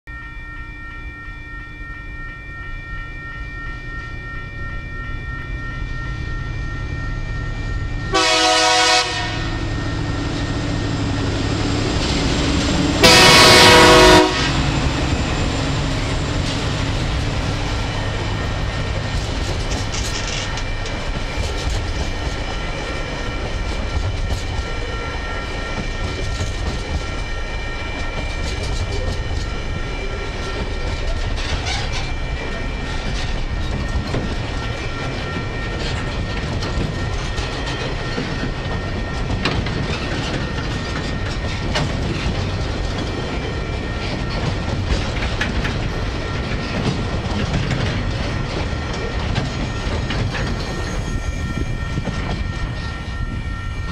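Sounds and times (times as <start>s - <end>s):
freight train rumbling past: 2.2s - 53.9s
locomotive horn blast: 8.1s - 9.8s, 12.9s - 14.9s
wheels clacking over rail joints: 11.4s - 53.3s.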